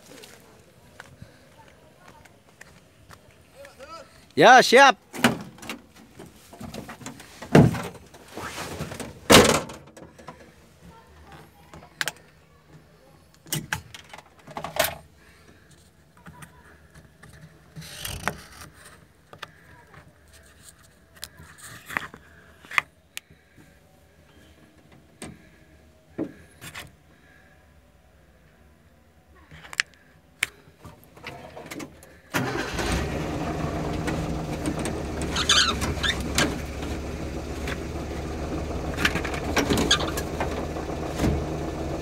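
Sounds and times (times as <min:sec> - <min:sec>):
knocks and rattles inside car cab: 0:06.7 - 0:08.1, 0:08.9 - 0:10.0, 0:34.0 - 0:42.0
faint engine idling: 0:30.8 - 0:42.0.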